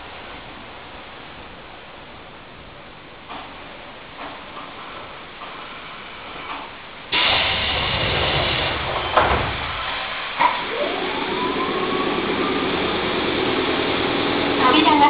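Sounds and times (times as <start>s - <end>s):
train running rumble and hiss: 0.0s - 15.0s
train motor whine rising: 7.1s - 15.0s.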